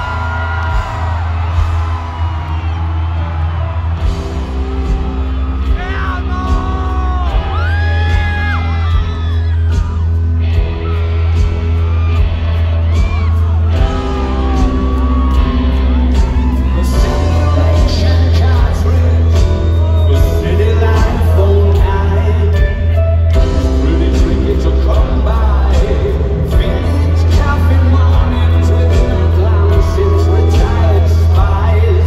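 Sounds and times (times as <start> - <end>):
crowd whooping and yelling: 0.0 - 32.0
deep bass notes: 0.0 - 32.0
live rock band: 0.0 - 32.0
person singing: 13.8 - 32.0.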